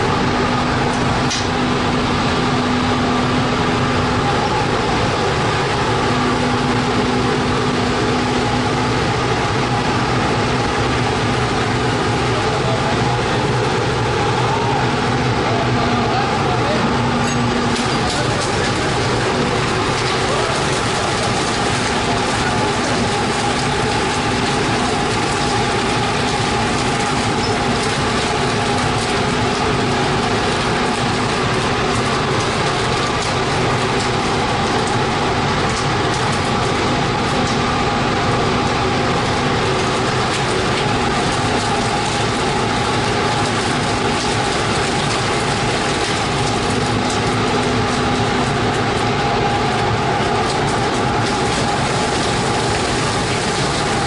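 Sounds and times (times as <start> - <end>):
machinery hum: 0.0 - 54.0.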